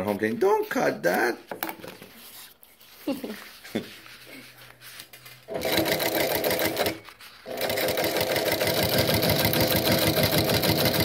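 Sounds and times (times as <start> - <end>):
sewing machine stitching: 5.5 - 11.0.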